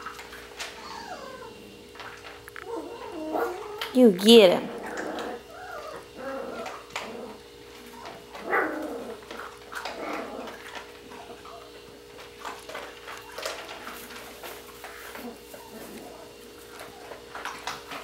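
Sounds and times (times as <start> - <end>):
puppies whimpering and yipping: 0.4 - 1.8, 2.6 - 3.9, 4.7 - 11.9, 12.8 - 14.1, 14.7 - 17.3.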